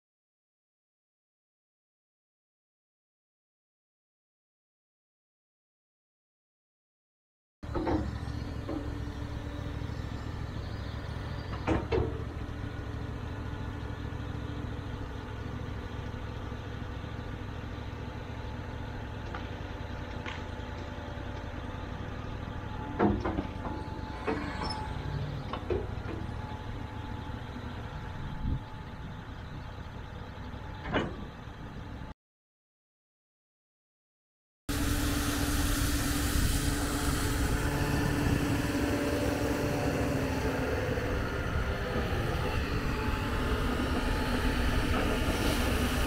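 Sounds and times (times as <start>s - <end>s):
excavator diesel engine running: 7.6s - 32.2s, 34.7s - 46.0s
machine knocks: 22.9s - 24.4s.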